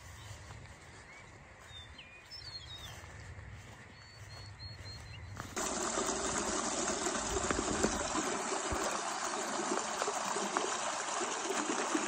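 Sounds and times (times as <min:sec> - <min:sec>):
faint bird chirps: 0:00.0 - 0:05.5
stream splashing over rocks: 0:05.6 - 0:12.0.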